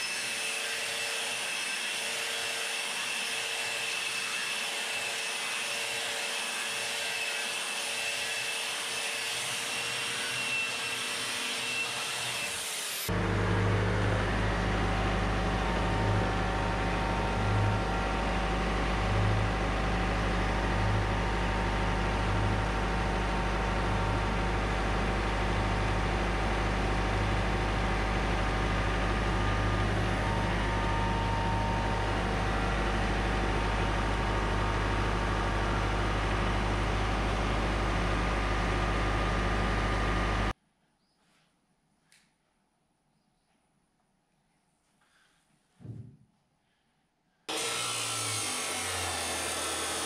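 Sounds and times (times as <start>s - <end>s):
tractor diesel engine running: 13.1s - 40.5s.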